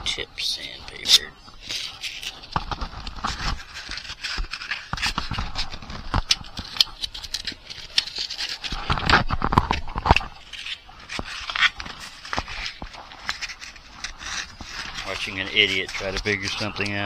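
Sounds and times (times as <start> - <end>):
soldering iron scraping on sandpaper: 10.4 - 17.0.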